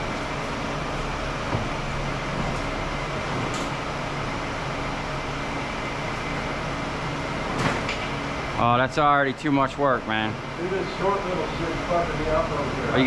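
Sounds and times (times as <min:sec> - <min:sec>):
machine humming: 0:00.0 - 0:13.0.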